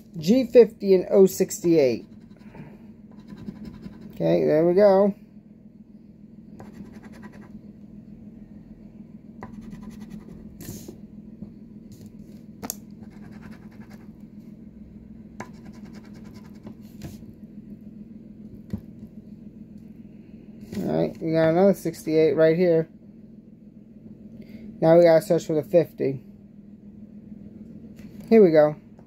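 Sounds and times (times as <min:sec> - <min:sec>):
low steady hum: 0:00.0 - 0:29.0
coin scratching lottery ticket: 0:06.6 - 0:07.5, 0:13.0 - 0:14.0.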